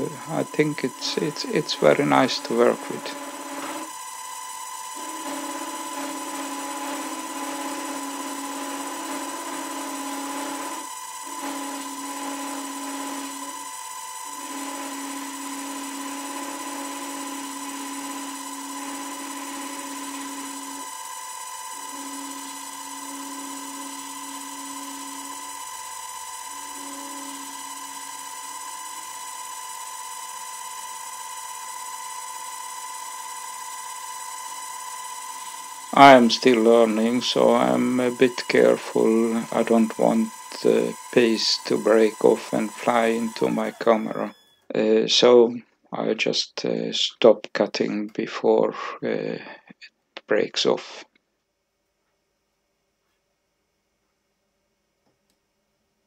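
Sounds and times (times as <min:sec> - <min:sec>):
cutter tool turning metal rod: 0:00.0 - 0:44.5
lathe spindle whining: 0:00.0 - 0:45.4.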